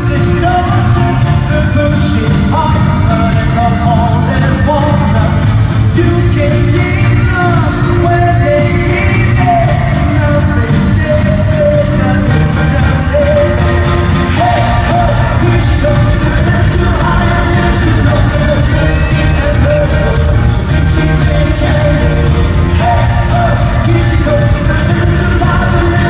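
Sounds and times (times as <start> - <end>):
loud pop backing track: 0.0 - 26.0
person singing: 0.0 - 26.0.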